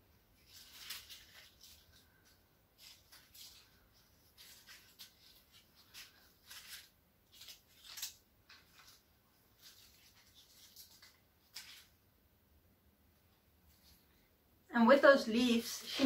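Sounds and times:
dry leaves crackling: 0.4s - 9.0s.

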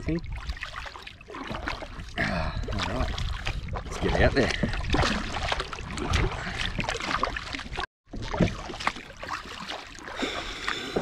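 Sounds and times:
paddle strokes splashing: 0.2s - 11.0s.

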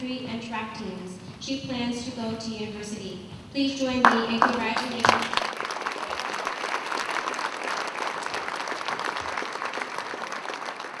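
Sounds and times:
audience applause: 4.0s - 11.0s.

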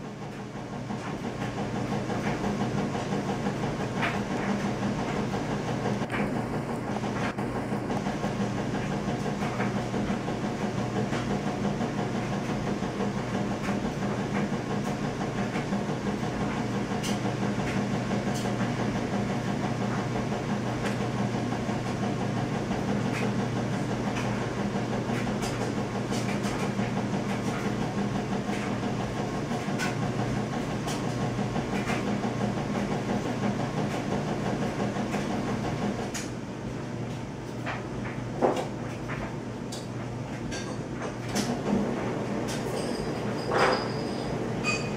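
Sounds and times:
steady machine hum: 0.0s - 44.9s.

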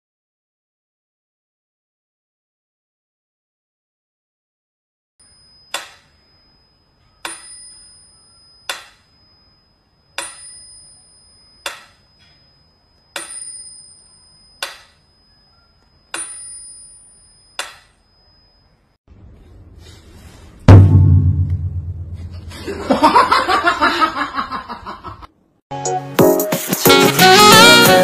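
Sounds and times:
metronome bell ringing: 5.2s - 18.8s.

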